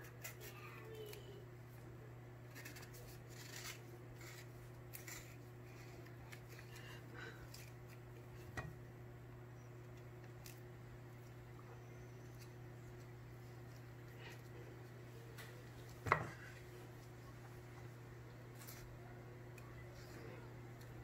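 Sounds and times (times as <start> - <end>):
steady low hum: 0.0 - 21.0
knife scraping and clicking: 2.5 - 5.4.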